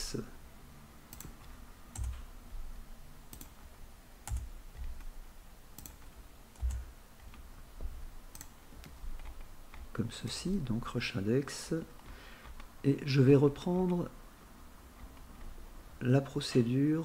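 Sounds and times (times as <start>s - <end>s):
computer mouse clicks: 1.1s - 2.3s, 3.3s - 5.2s, 5.8s - 7.5s, 8.3s - 9.9s, 12.0s - 12.8s
keyboard keys clicking: 1.1s - 2.3s, 3.3s - 5.2s, 5.8s - 7.5s, 8.3s - 10.0s.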